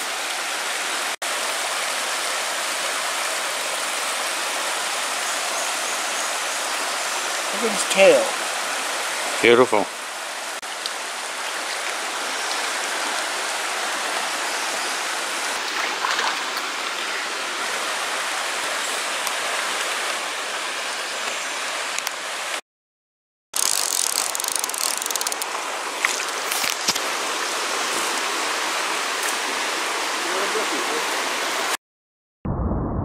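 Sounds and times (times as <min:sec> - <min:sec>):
stream running over rocks: 0:00.0 - 0:22.6, 0:23.6 - 0:31.8
short clicks and crackles: 0:23.6 - 0:25.5.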